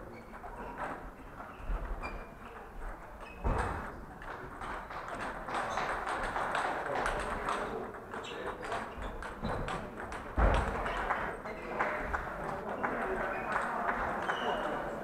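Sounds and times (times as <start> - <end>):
table tennis balls clicking: 4.2 - 11.0.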